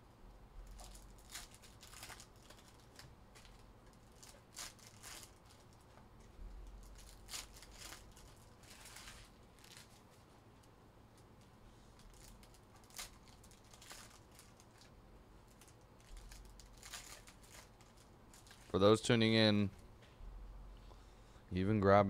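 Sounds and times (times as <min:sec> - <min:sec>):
wrapper tearing: 0:00.7 - 0:05.9, 0:06.7 - 0:10.2, 0:12.0 - 0:14.9, 0:15.5 - 0:18.8
card pack wrappers crinkling: 0:00.7 - 0:06.0, 0:06.6 - 0:19.2.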